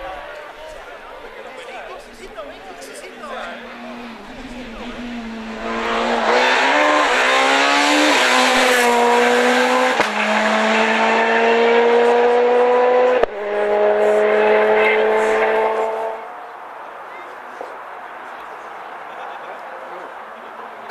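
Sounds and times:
rally car engine accelerating: 3.4 - 16.3.

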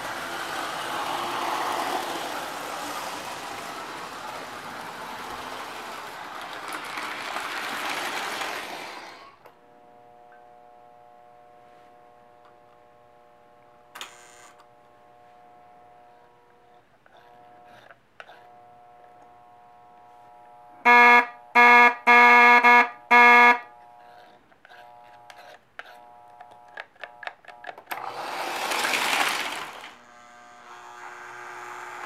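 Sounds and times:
toy train whine: 0.0 - 9.5, 23.0 - 32.0
toy train horn blasts: 20.8 - 23.8.

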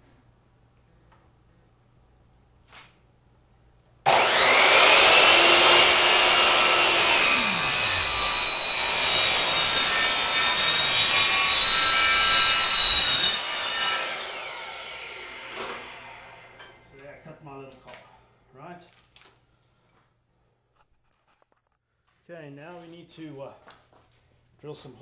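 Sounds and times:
miter saw cutting pipe: 4.1 - 16.7.

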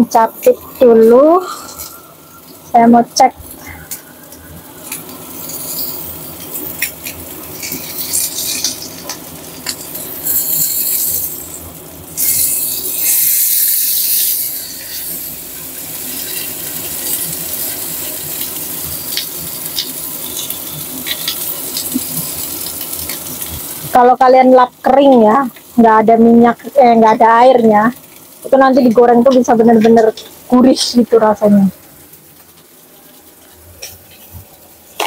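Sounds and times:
fish sizzling in oil: 0.0 - 35.0
metal tongs clicking on pan: 6.5 - 11.3.

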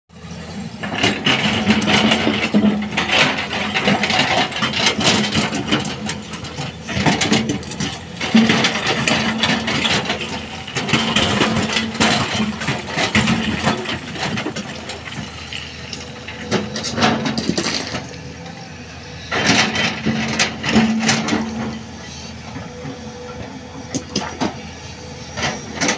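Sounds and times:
excavator diesel engine working: 0.1 - 25.9
rocks clattering into steel truck bed: 0.9 - 18.1, 19.3 - 21.8.

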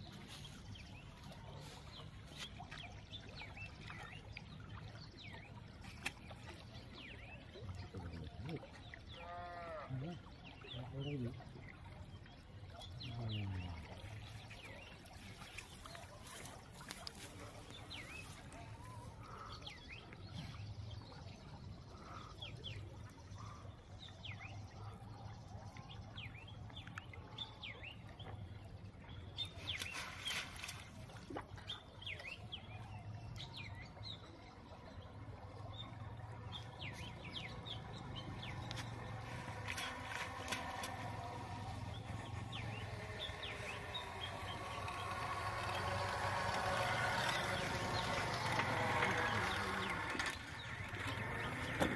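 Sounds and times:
water splashing and dripping: 0.0 - 22.0, 28.0 - 51.9
small birds chirping: 10.2 - 24.9, 28.6 - 51.9.

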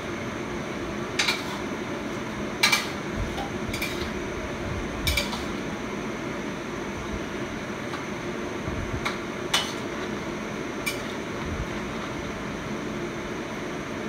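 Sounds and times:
steady hum: 0.0 - 14.0
plate and utensil clicking: 5.1 - 5.5.

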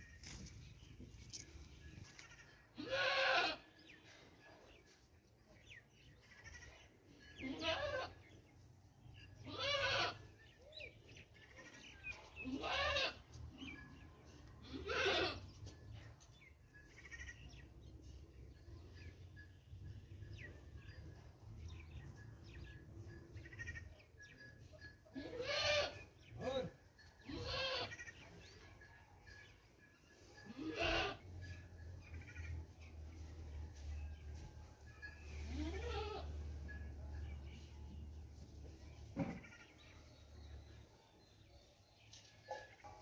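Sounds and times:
drawn-out animal calls: 16.8 - 17.7.

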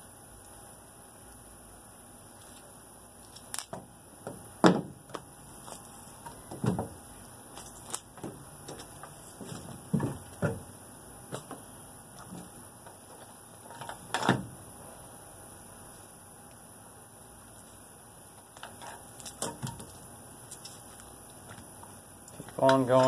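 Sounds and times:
dull knocks on plastic: 3.7 - 5.2, 9.4 - 10.7.

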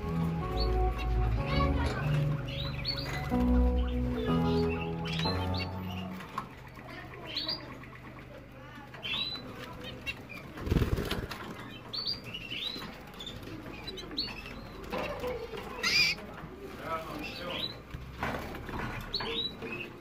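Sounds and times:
canary chirps: 0.0 - 20.0
wing fluttering: 9.7 - 11.7.

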